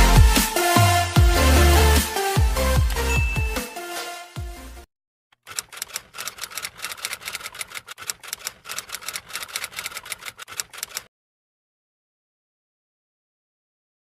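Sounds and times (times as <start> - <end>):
electronic music: 0.0 - 4.8
typewriter key clicks: 5.4 - 11.1.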